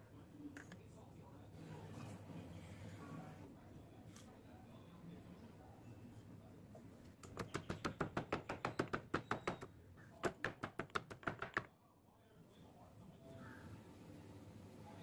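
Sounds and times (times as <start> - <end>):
pestle pounding in stone mortar: 7.4 - 11.7.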